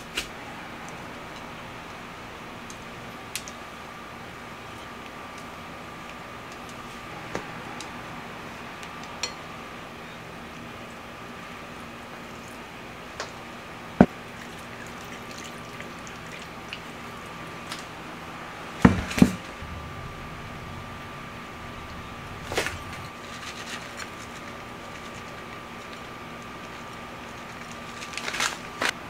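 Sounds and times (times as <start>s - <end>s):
steady electrical hum: 0.0s - 29.0s.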